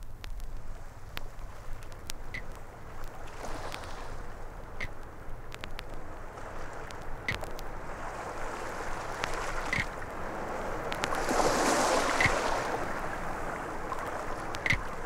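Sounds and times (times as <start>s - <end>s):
vinyl clicks and crackle: 0.0s - 7.9s, 8.6s - 11.3s, 13.9s - 15.0s
surf-like electronic noise: 0.0s - 15.0s
short high blips: 12.2s - 12.5s, 14.6s - 14.9s.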